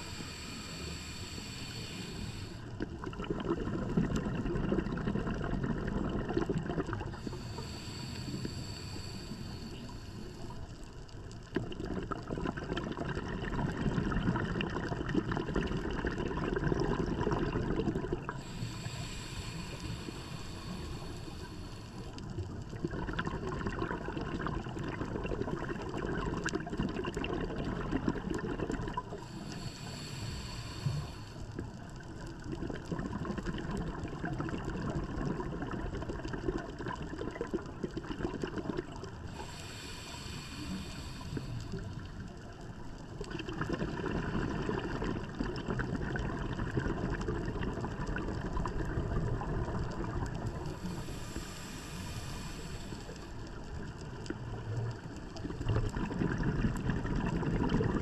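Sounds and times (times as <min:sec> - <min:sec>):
regulator inhalation hiss: 0:00.0 - 0:02.8, 0:07.0 - 0:10.7, 0:18.4 - 0:22.3, 0:29.1 - 0:31.6, 0:39.2 - 0:42.1, 0:50.6 - 0:53.9
exhaled bubbles gurgling: 0:00.0 - 0:58.0.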